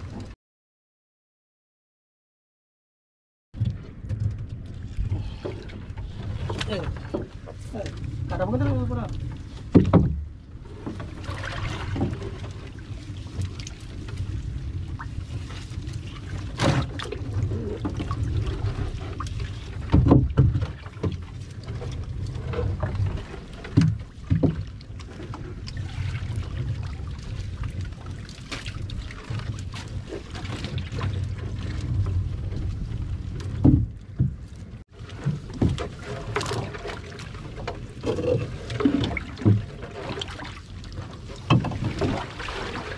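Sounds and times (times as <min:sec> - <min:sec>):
steady low rumble: 0:03.6 - 0:19.9
knocks and thuds on hull: 0:03.6 - 0:42.9.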